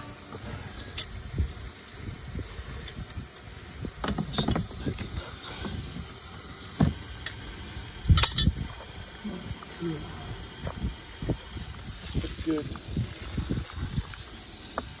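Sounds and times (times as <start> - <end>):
metal wrench clicking and knocking: 8.2 - 8.6.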